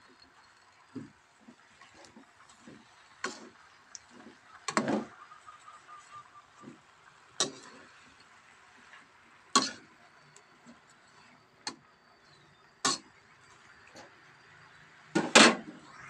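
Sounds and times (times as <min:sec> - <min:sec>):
metal spatula clanking on wok: 0:07.4 - 0:07.9.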